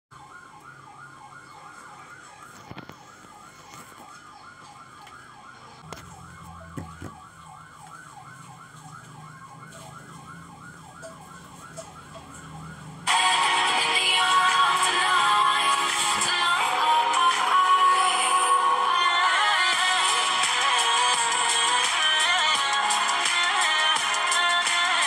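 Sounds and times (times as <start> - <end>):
warbling electronic siren tone: 0.1 - 15.1.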